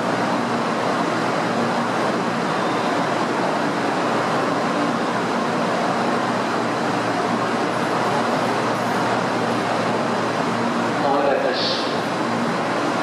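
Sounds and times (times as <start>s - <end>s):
hubbub of passengers: 0.0s - 13.0s
stationary train equipment running: 0.0s - 13.0s.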